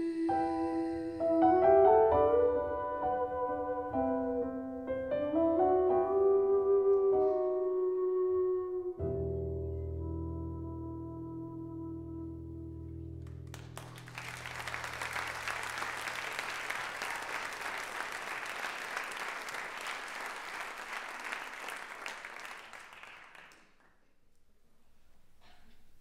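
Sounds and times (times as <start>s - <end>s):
audience applauding: 13.2s - 24.0s.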